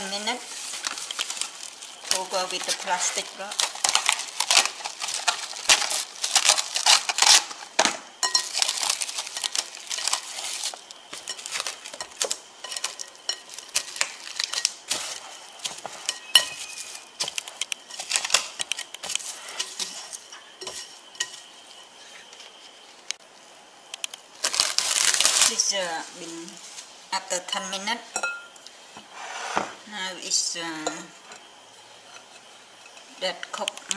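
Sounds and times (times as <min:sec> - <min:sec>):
plastic wrap crinkling: 0:00.0 - 0:23.2, 0:24.0 - 0:27.0
glass bowl clinking: 0:08.2 - 0:08.7, 0:16.0 - 0:17.1, 0:28.1 - 0:28.6.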